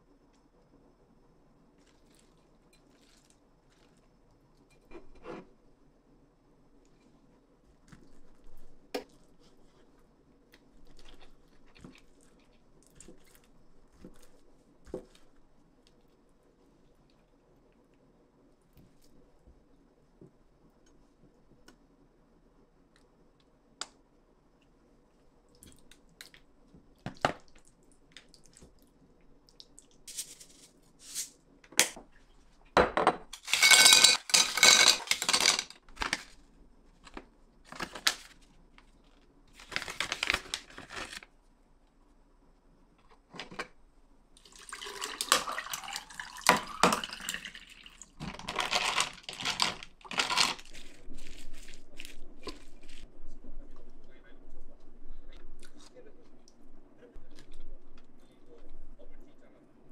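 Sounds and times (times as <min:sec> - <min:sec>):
ice cubes clattering into glass pitcher: 0:33.4 - 0:35.7, 0:44.8 - 0:47.6, 0:48.2 - 0:50.7
liquid pouring over ice: 0:44.4 - 0:50.7.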